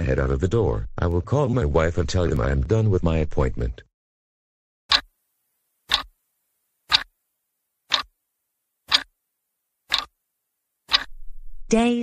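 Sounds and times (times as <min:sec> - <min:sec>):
clock ticking: 0:05.9 - 0:06.1, 0:06.9 - 0:07.1, 0:07.9 - 0:08.1, 0:08.9 - 0:09.1, 0:09.9 - 0:10.1, 0:10.9 - 0:11.1.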